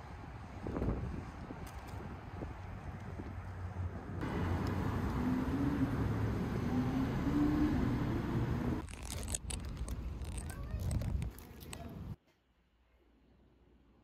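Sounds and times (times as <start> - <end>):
low rumble of traffic: 0.0 - 12.2
rustling and handling clicks: 8.8 - 12.0.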